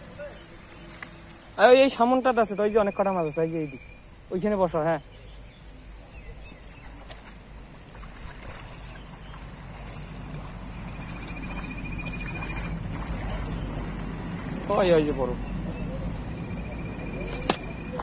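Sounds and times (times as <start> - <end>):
water sloshing and splashing: 6.5 - 15.6.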